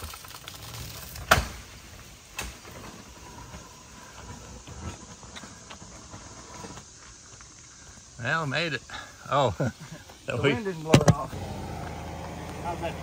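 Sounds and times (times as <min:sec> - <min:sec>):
low vehicle rumble: 0:11.0 - 0:13.0.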